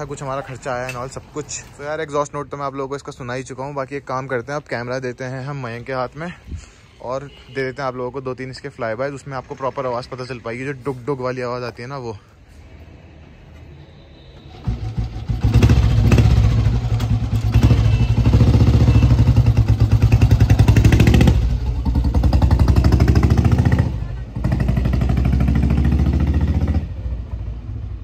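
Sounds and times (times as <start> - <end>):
motorcycle passing by: 14.5 - 28.0.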